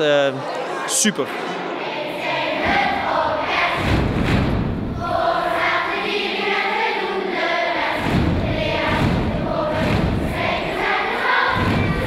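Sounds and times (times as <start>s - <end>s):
children singing together: 0.6s - 4.2s, 4.9s - 12.0s
dull low thumps: 3.7s - 5.1s, 7.9s - 10.8s, 11.5s - 12.0s.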